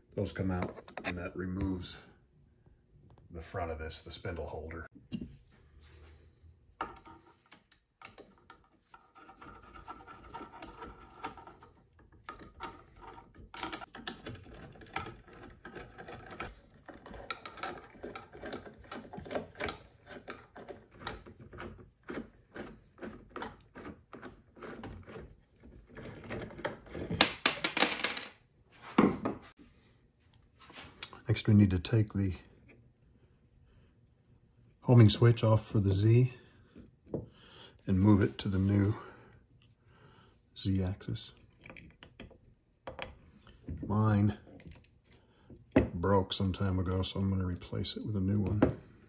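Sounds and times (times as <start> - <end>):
metal parts clicking and scraping: 6.8 - 27.2.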